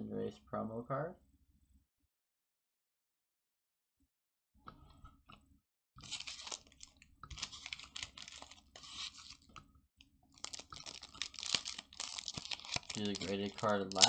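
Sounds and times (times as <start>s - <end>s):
foil wrappers crinkling: 6.0s - 9.6s, 10.3s - 14.0s.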